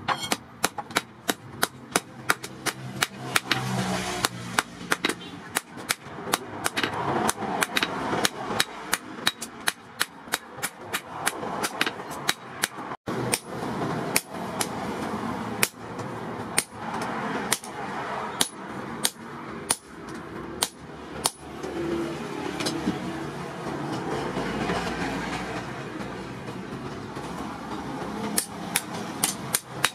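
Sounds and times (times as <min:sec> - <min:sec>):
hammer striking metal on anvil: 0:00.0 - 0:14.7, 0:18.4 - 0:21.6, 0:28.2 - 0:29.9.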